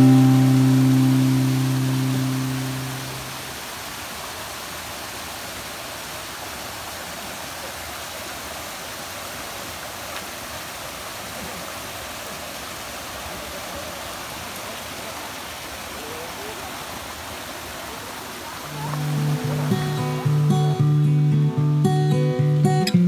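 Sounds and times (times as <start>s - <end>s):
background music: 0.0s - 3.2s, 18.9s - 23.0s
waterfall rushing: 0.0s - 23.0s.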